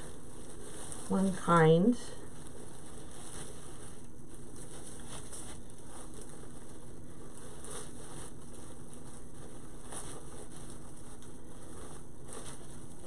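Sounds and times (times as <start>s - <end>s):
faint low hum: 0.0s - 13.0s
ribbon rustling and crinkling: 0.0s - 13.0s.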